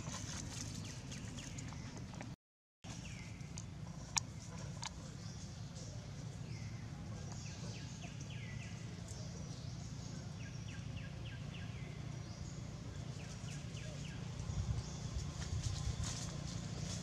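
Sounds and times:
steady low rumble: 0.0s - 17.0s
monkey running over dry leaves: 13.2s - 17.0s.

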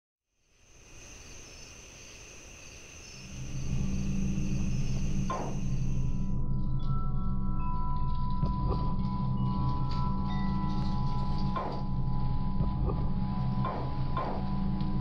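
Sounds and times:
insects chirping: 0.4s - 6.4s
low hum: 3.2s - 15.0s.

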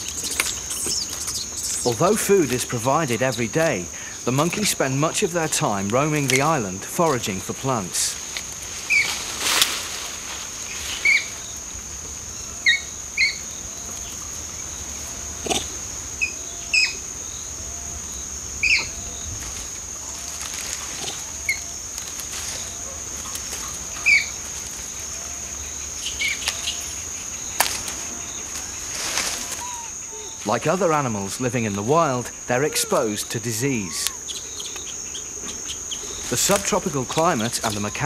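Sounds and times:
high-pitched insect drone: 10.6s - 38.0s
sharp animal chirps: 29.4s - 30.5s.

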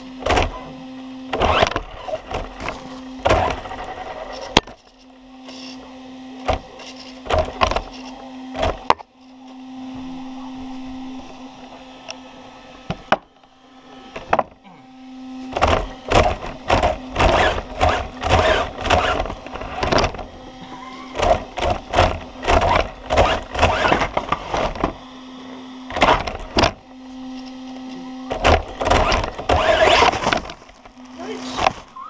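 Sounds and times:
rc car motor whining: 0.0s - 32.0s
knocks and rattles: 15.5s - 20.3s, 21.2s - 25.0s, 28.3s - 31.0s.

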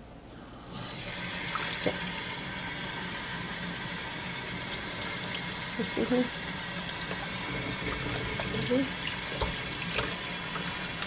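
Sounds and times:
tap water pouring: 0.9s - 2.5s, 3.8s - 6.1s, 6.7s - 11.0s.

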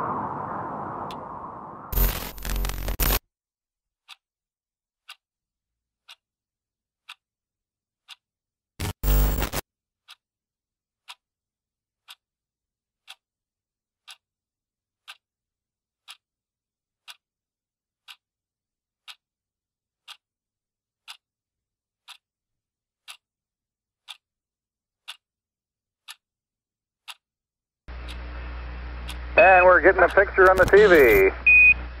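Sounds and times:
clock ticking: 4.0s - 4.2s, 5.0s - 5.2s, 6.0s - 6.2s, 7.0s - 7.2s, 8.0s - 8.2s, 8.8s - 10.2s, 11.0s - 11.2s, 12.0s - 12.2s, 13.0s - 13.2s, 14.0s - 14.2s, 15.0s - 15.2s, 16.0s - 16.2s, 17.0s - 17.2s, 18.0s - 18.2s, 19.0s - 19.2s, 20.0s - 20.2s, 21.0s - 21.2s, 22.0s - 22.2s, 23.0s - 23.2s, 24.0s - 24.2s, 25.0s - 25.2s, 26.0s - 26.2s, 27.0s - 27.2s, 29.0s - 31.6s.

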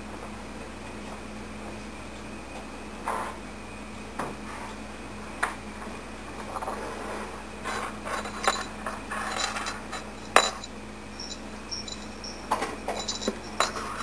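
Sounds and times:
steady low hum: 0.0s - 14.0s
kittens rustling and scraping: 6.5s - 14.0s.

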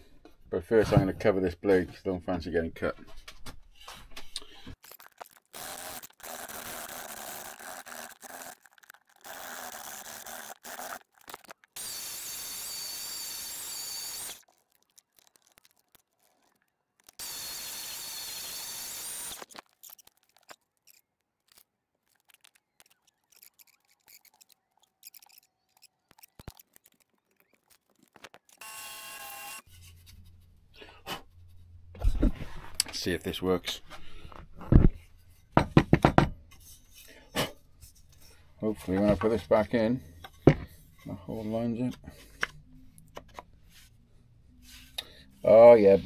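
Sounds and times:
tape pulled off a roll squealing: 4.8s - 12.0s.

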